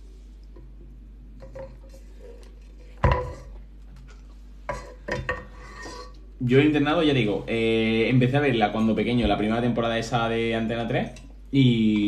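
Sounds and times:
cooking pot set down on table: 0:03.0 - 0:03.5.

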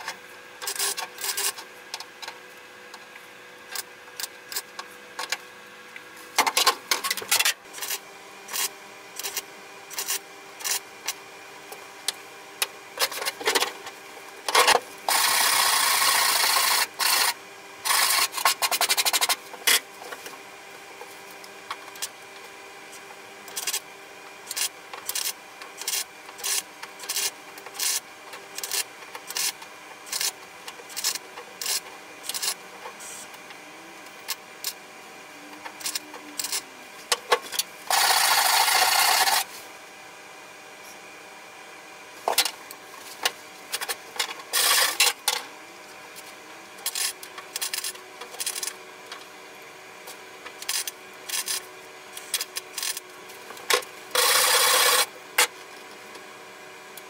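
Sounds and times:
arc welding bursts: 0:15.1 - 0:19.1, 0:54.1 - 0:55.2
faint hum: 0:30.0 - 0:54.6.

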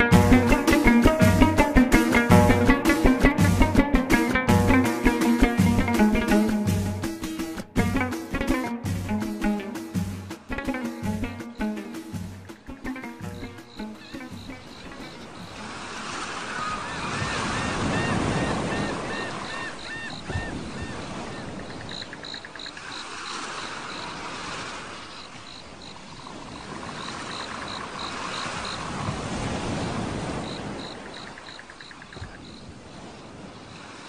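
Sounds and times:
surf washing in: 0:00.0 - 0:34.0
high repeated chirping calls: 0:11.4 - 0:15.7.

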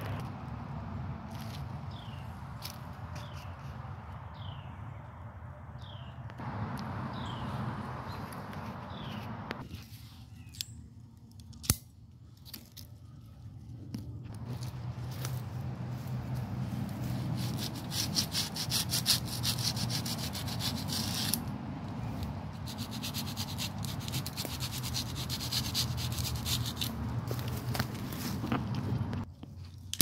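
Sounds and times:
rapid scraping on tree bark: 0:14.3 - 0:29.8.

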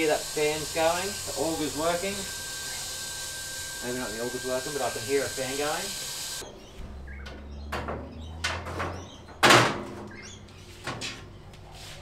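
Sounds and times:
clunks of steel smoker parts: 0:06.4 - 0:11.4.

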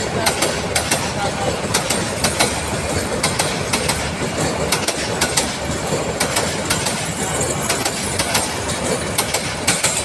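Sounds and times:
train wheels rumbling on rails: 0:00.0 - 0:10.0
wheels clicking over rail joints: 0:00.0 - 0:10.0.

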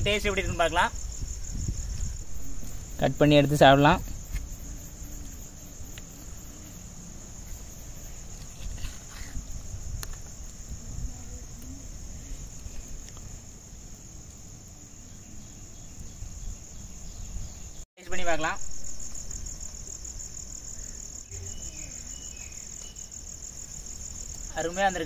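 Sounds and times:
insects chorus: 0:00.0 - 0:25.0
low rumble: 0:00.9 - 0:04.7.

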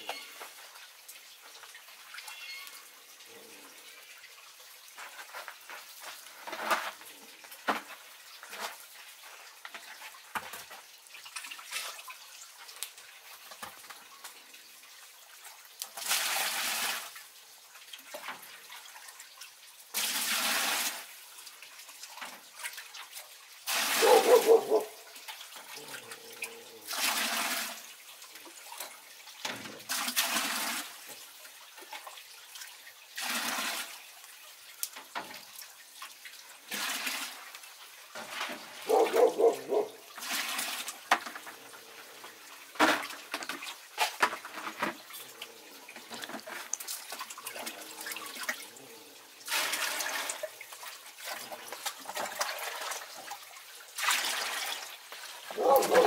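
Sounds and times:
water pouring into metal pot: 0:15.7 - 0:34.5, 0:35.1 - 0:56.0.

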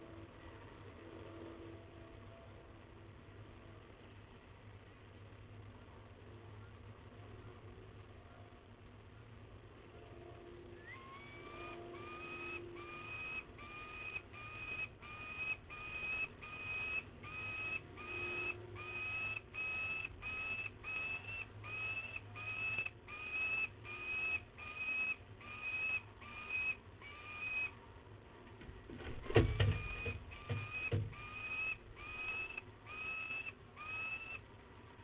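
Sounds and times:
young falcon calling: 0:10.8 - 0:27.8, 0:29.4 - 0:34.4
wings flapping: 0:28.9 - 0:31.0.

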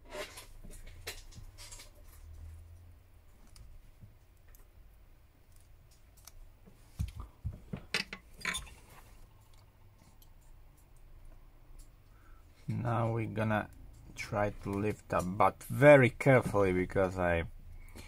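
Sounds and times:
metal tool scraping glass: 0:08.4 - 0:08.9.

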